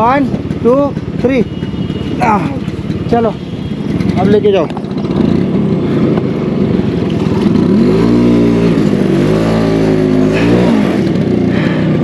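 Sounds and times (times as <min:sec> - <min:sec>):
scooter engine revving: 0:00.0 - 0:12.0.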